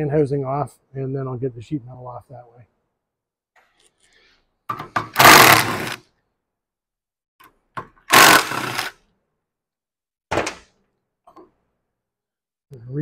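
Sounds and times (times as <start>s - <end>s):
power tool whirring: 5.1s - 6.0s, 8.1s - 9.0s.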